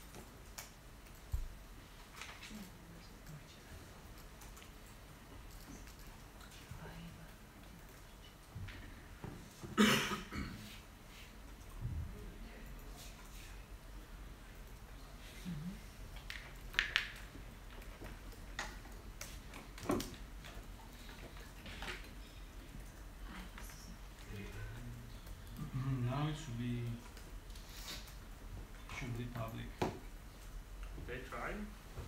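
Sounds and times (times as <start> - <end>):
laptop keyboard and trackpad clicks: 16.2 - 20.2.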